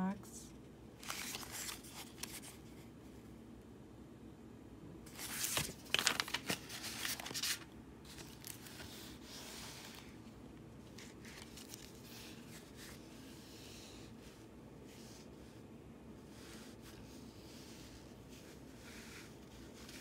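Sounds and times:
plastic film crinkling: 0:01.0 - 0:02.6, 0:05.1 - 0:09.2, 0:10.9 - 0:13.0.

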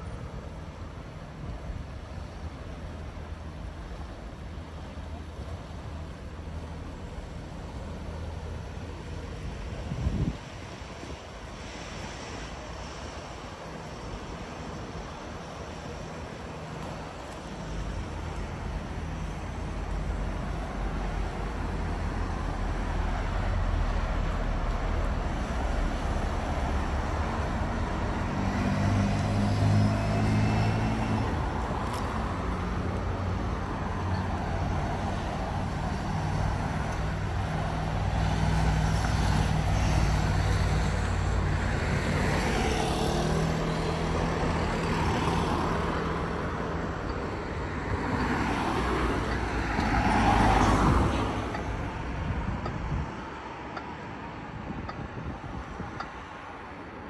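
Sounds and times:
motor vehicles passing: 0:23.4 - 0:53.1.

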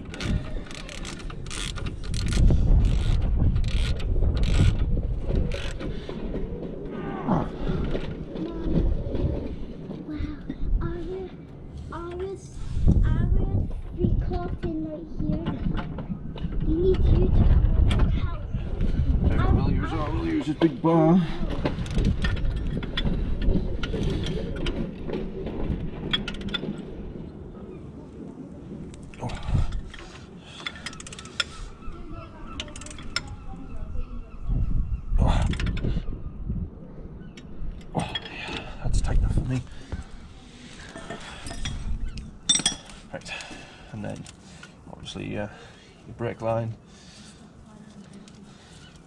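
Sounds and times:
ratchet clicks: 0:00.0 - 0:04.8
metal tool handling: 0:42.4 - 0:43.1.

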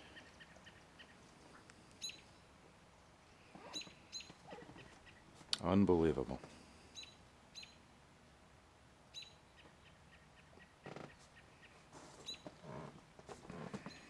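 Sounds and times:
small bird chirping: 0:00.0 - 0:05.3, 0:06.9 - 0:07.9, 0:09.1 - 0:12.9
soft scuffs: 0:11.2 - 0:12.6.

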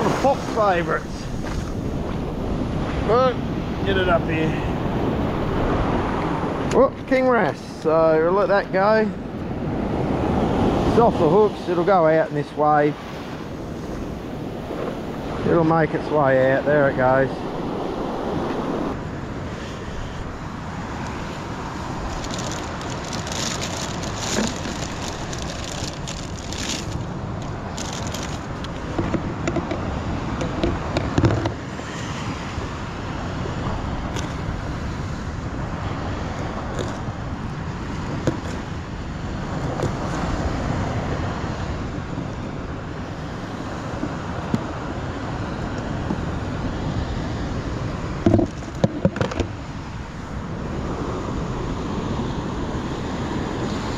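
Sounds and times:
surf washing onto beach: 0:00.0 - 0:53.9
wind buffeting microphone: 0:00.0 - 0:53.9
gear handling clicks and knocks: 0:22.2 - 0:29.8.

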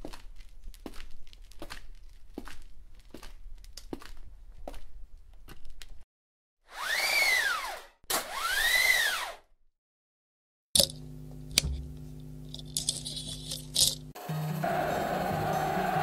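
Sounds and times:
clicks and crackles: 0:00.0 - 0:04.3.

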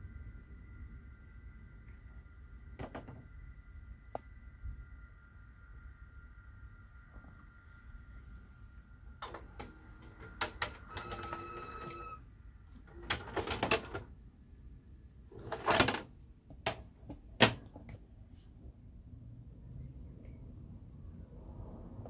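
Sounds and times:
tape mechanism clicks and clunks: 0:09.2 - 0:12.2, 0:12.8 - 0:14.1.

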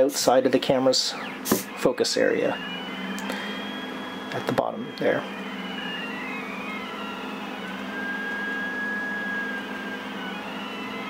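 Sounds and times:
steady low hum: 0:00.0 - 0:11.0
stepper motors whining: 0:00.0 - 0:11.0.

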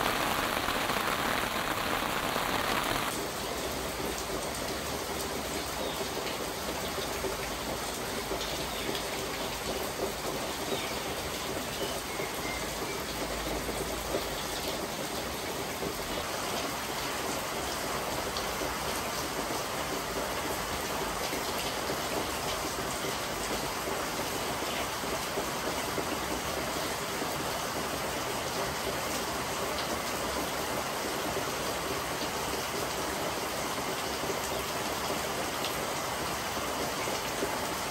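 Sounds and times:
raindrop hits: 0:00.0 - 0:03.3
rain on leaves: 0:00.0 - 0:37.9.

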